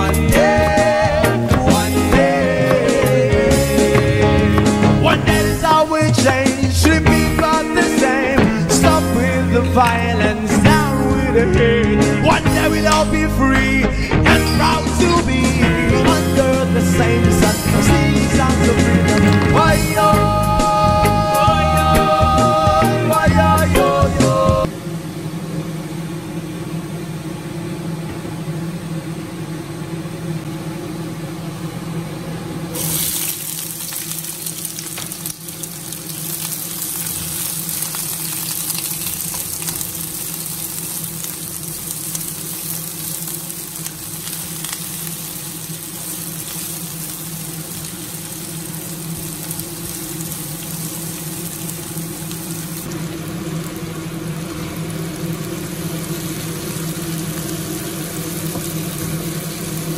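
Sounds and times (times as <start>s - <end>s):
steady low hum: 0.0s - 59.9s
onions sizzling in hot oil: 32.8s - 59.9s.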